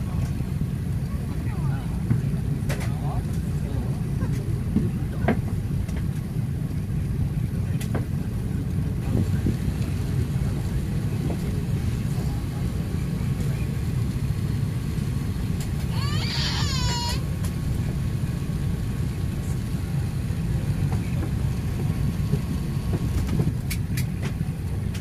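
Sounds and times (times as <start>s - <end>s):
aircraft cabin rumble: 0.0s - 25.0s
baby crying: 15.9s - 17.3s.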